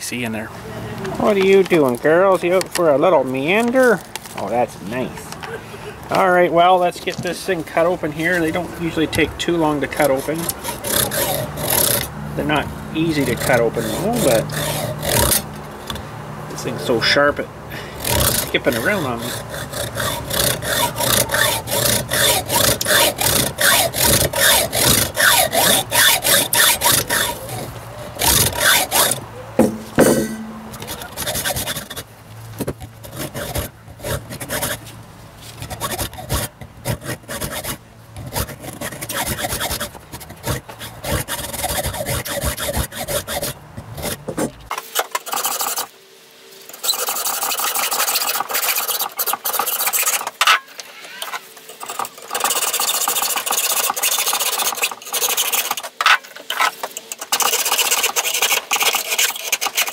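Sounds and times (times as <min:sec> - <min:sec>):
saw rasping through sheet steel: 0:07.8 - 0:16.0, 0:16.6 - 0:32.1, 0:32.8 - 0:45.9, 0:46.7 - 0:59.9.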